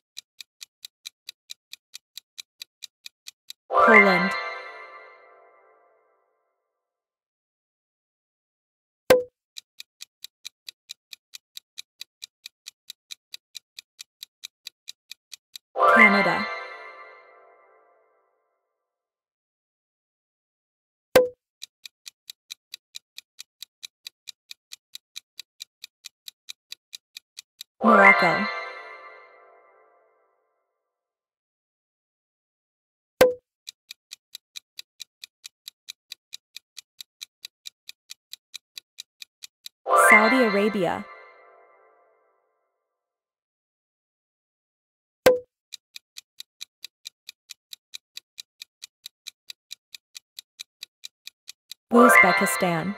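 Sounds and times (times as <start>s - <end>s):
rapid clock ticking: 0.0s - 4.9s, 9.2s - 17.0s, 21.2s - 29.2s, 33.3s - 41.3s, 45.4s - 52.9s.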